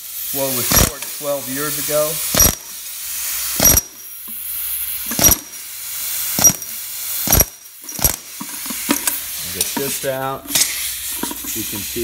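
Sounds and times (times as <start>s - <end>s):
hammer striking steel chisel: 2.4s - 2.6s, 3.6s - 4.0s, 6.4s - 6.7s, 7.3s - 8.2s.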